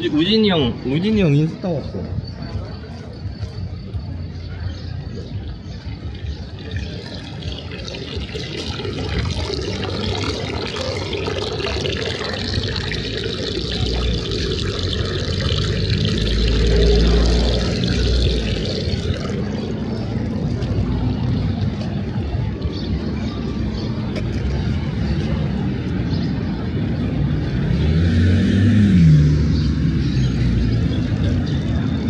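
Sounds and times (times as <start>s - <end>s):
rushing water: 6.5s - 20.1s.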